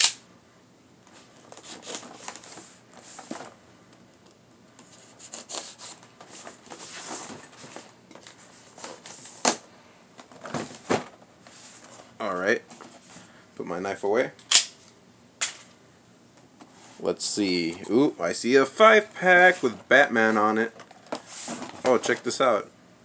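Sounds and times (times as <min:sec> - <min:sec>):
knife cutting tape and cardboard: 0:05.1 - 0:06.0.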